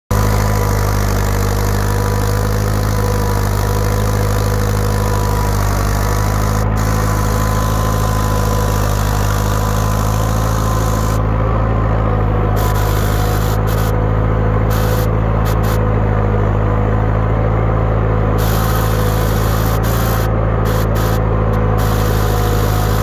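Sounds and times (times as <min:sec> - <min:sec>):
thin steady whine: 0:00.1 - 0:23.0
tractor engine running under load: 0:00.1 - 0:23.0.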